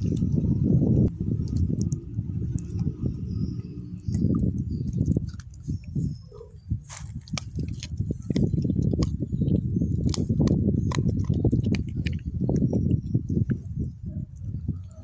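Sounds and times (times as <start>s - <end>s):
dog chewing wetly: 1.4s - 15.0s
bone crunching: 4.2s - 6.0s, 6.8s - 12.7s.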